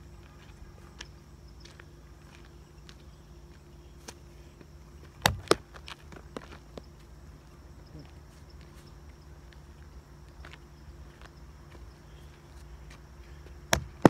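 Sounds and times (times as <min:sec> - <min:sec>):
baseball knocking on asphalt: 0:05.2 - 0:05.7, 0:13.7 - 0:14.0.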